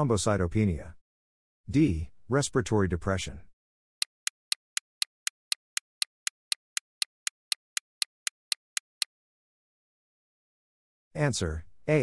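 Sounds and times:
clock ticking: 4.0s - 9.1s.

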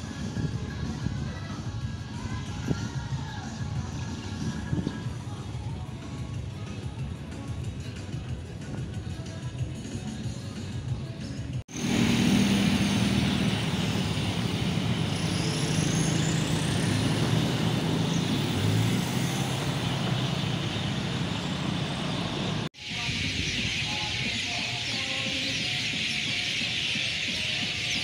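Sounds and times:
high hiss: 11.7s - 17.3s
traffic passing: 11.7s - 22.7s.

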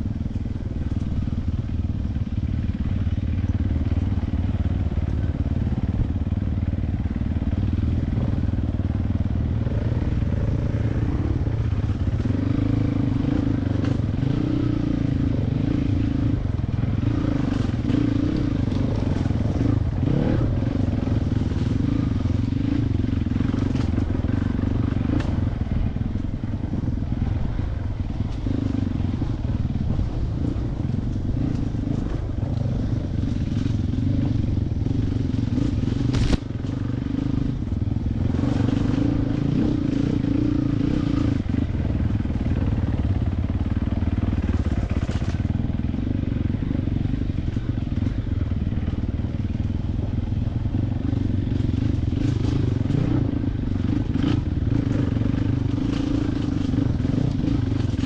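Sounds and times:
dirt bike engine revving: 9.4s - 25.6s, 28.3s - 43.2s, 50.9s - 58.0s.

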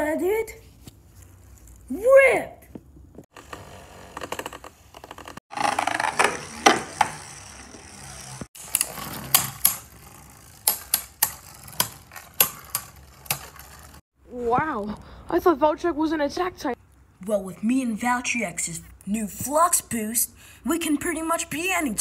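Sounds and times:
spinning tops rattling on plastic: 5.6s - 14.0s
spinning tops clacking together: 5.7s - 14.0s.

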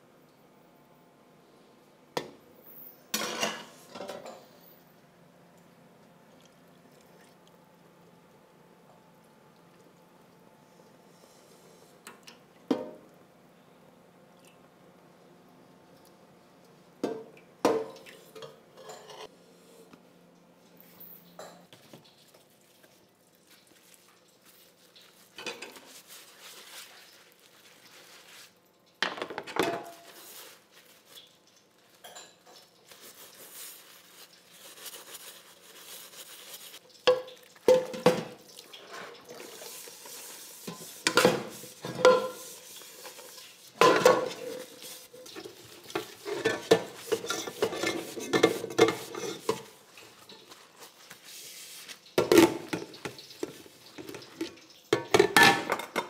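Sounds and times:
spoon knocking and scraping metal pot: 45.3s - 49.7s.

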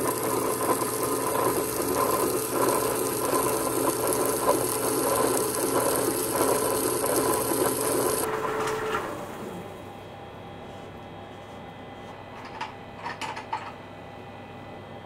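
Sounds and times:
stone grinder rattling and humming: 0.0s - 8.4s.

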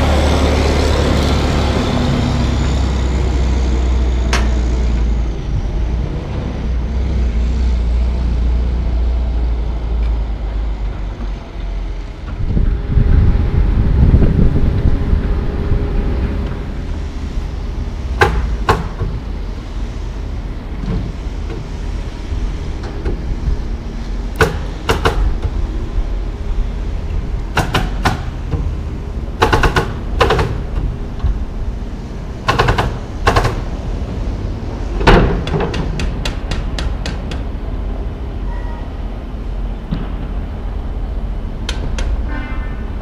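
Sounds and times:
steady low rumble: 0.0s - 43.0s
sharp construction bangs: 18.0s - 19.3s, 24.3s - 25.6s, 27.4s - 31.0s, 32.4s - 37.5s, 39.8s - 40.8s.

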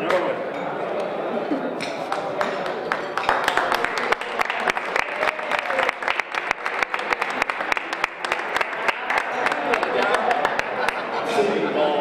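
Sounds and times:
murmur of voices: 0.0s - 12.0s
audience clapping: 2.0s - 11.2s.

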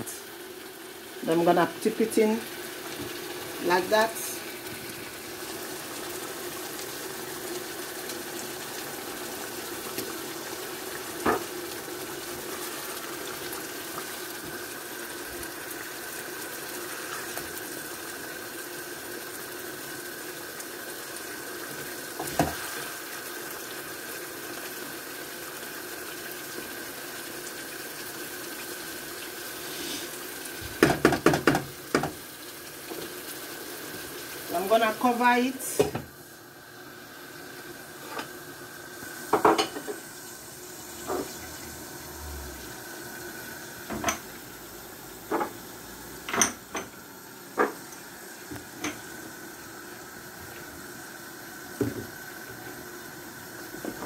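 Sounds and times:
sauce simmering in a pan: 0.0s - 54.0s
wooden spatula knocking pan: 30.8s - 32.2s.

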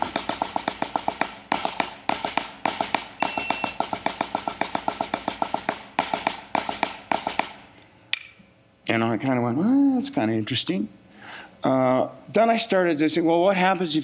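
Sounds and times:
snare drum roll with sticks: 0.0s - 7.6s.

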